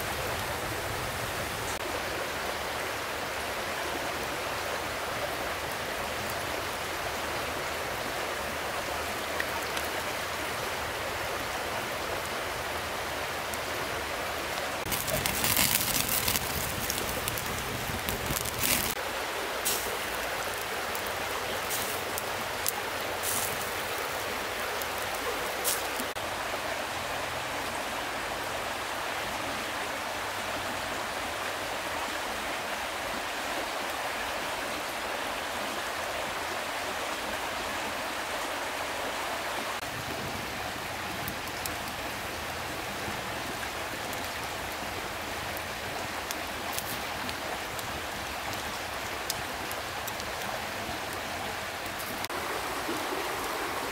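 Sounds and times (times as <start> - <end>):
stream rushing: 0.0 - 53.9
campfire wood popping: 14.8 - 19.0, 19.6 - 26.2.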